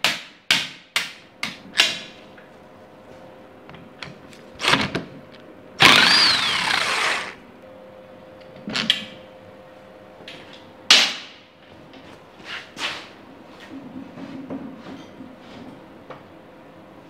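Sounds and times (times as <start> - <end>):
power driver whining: 5.8 - 7.4.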